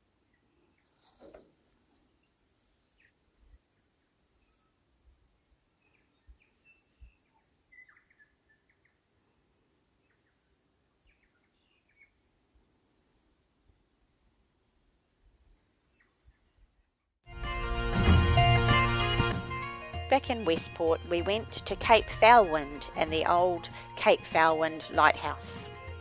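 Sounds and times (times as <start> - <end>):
bird calling in the distance: 2.1 - 9.0.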